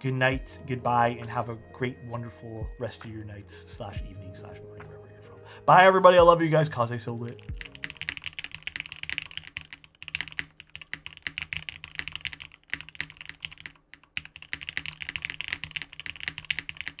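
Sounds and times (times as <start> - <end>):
mechanical keyboard key clacks: 7.3 - 17.0.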